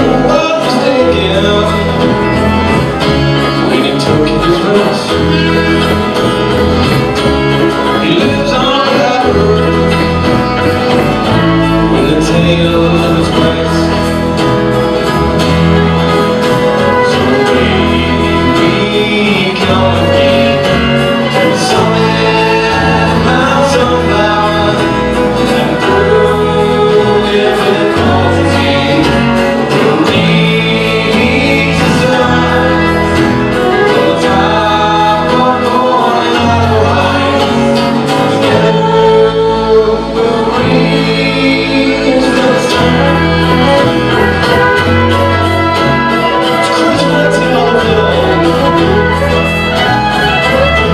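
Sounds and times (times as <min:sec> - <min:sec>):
acoustic guitar: 0:00.0 - 0:50.9
banjo: 0:00.0 - 0:50.9
person singing: 0:00.0 - 0:50.9
upright bass: 0:00.0 - 0:50.9
alto saxophone: 0:42.8 - 0:50.9.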